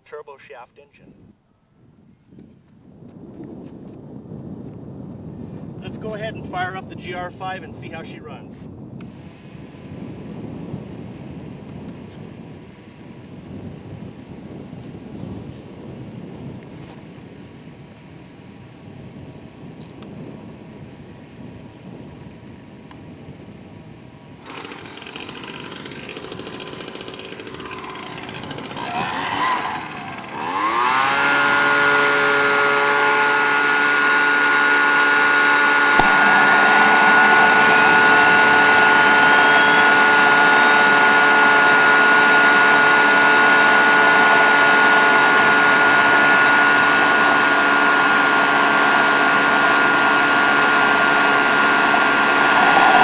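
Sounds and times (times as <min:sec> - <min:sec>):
turbocharger whine rising: 0:02.9 - 0:53.0
leaf blower revving: 0:09.0 - 0:17.1, 0:24.3 - 0:53.0.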